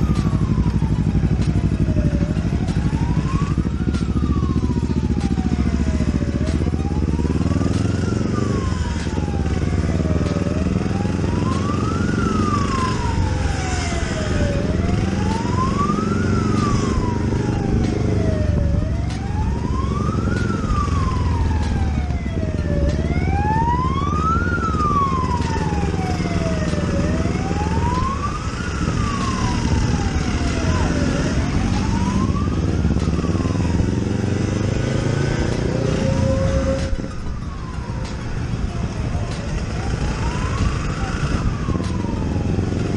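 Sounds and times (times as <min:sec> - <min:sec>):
wailing siren: 0:00.0 - 0:42.9.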